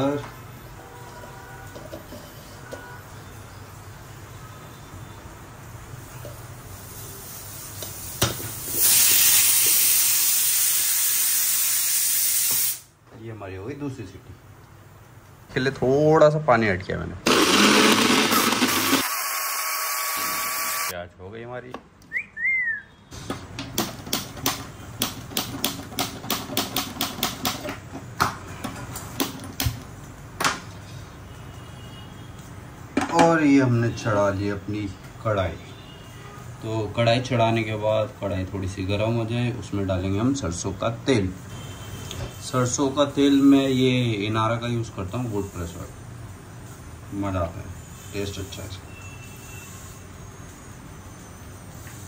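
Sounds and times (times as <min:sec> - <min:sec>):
pressure cooker whistling steam: 0:06.8 - 0:12.9, 0:17.3 - 0:21.0, 0:47.8 - 0:52.0.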